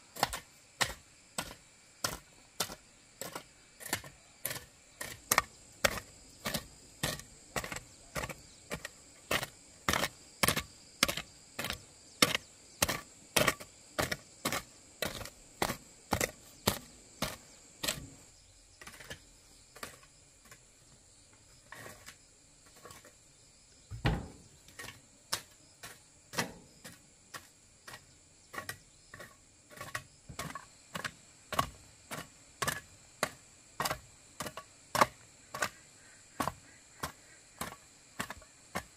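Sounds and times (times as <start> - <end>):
sharp chopping knocks: 23.9 - 24.4
heavy thud: 23.9 - 24.5.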